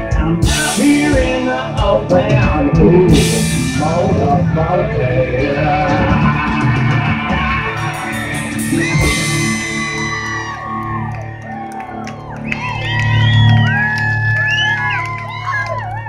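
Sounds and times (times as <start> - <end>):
live rock band playing: 0.0 - 15.9
people whooping: 5.9 - 16.0
cymbals crashing: 7.6 - 10.6.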